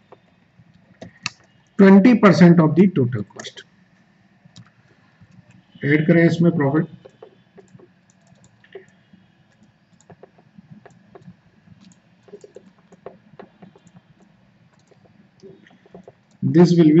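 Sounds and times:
stylus tapping on tablet: 0:07.0 - 0:09.0, 0:09.6 - 0:16.4.

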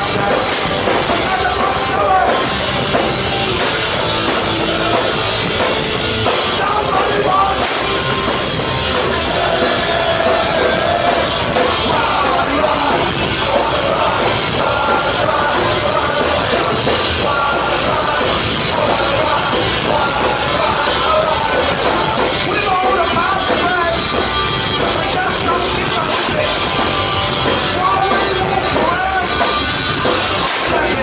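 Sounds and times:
punk rock band playing live: 0:00.0 - 0:31.0
shouted singing: 0:00.0 - 0:31.0.

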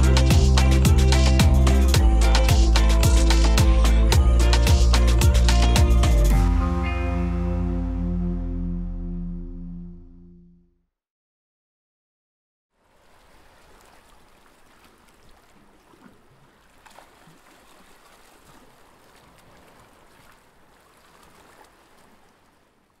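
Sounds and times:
small splashes and drips: 0:12.8 - 0:23.0
water lapping and trickling: 0:12.8 - 0:23.0.

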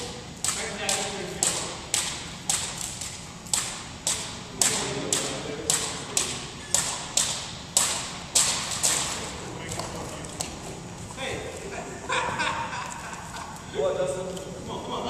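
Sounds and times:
jump ropes slapping wooden floor: 0:00.0 - 0:11.2.

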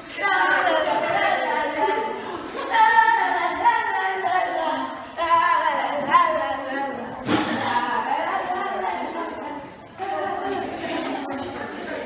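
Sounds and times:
woman singing unaccompanied: 0:02.7 - 0:11.9.

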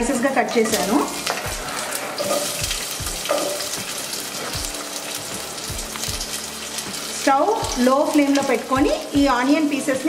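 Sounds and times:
onion sizzling in hot oil: 0:00.0 - 0:10.0.

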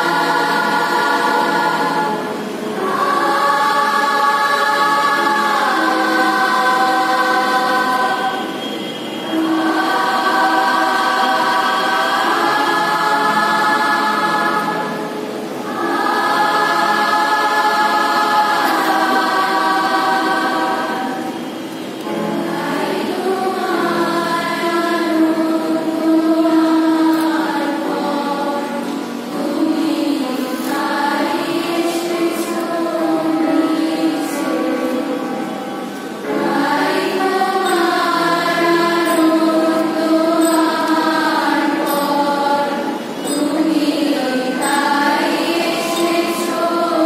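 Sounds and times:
girls' choir singing: 0:00.0 - 0:47.0.

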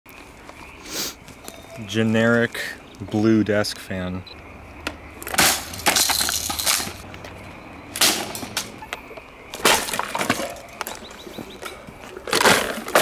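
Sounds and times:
breaking parts clattering: 0:05.2 - 0:07.0, 0:08.0 - 0:08.8, 0:09.6 - 0:11.1
fan crashing on ground: 0:05.3 - 0:07.0.

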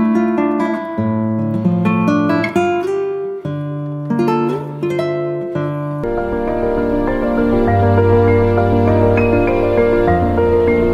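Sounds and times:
acoustic guitar music: 0:00.0 - 0:10.9.

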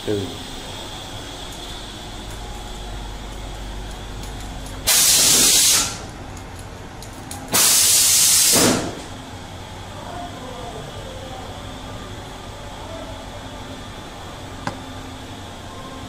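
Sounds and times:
pressurised jet hissing blasts: 0:04.9 - 0:06.0, 0:07.5 - 0:09.0.

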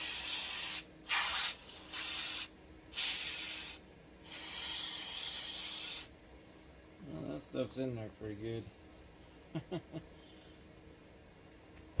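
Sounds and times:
aerosol spray hissing: 0:00.0 - 0:06.1.

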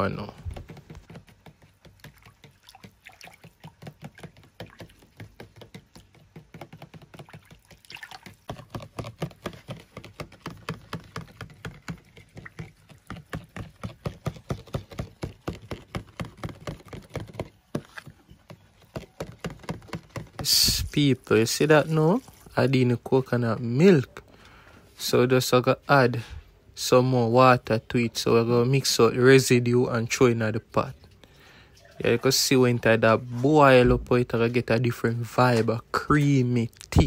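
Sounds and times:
liquid sloshing: 0:00.5 - 0:15.4, 0:21.1 - 0:22.8.

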